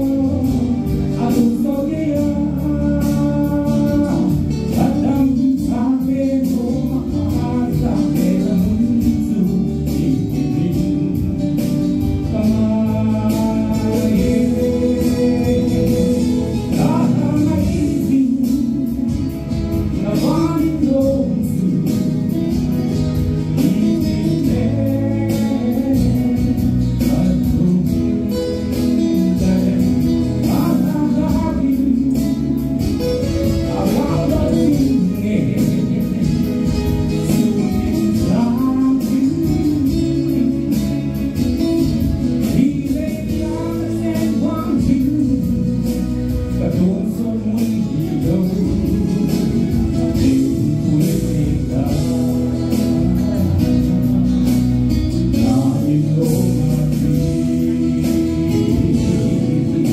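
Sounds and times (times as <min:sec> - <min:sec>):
instrumental accompaniment with beat: 0:00.0 - 0:59.9
man singing through microphone: 0:00.0 - 0:59.9.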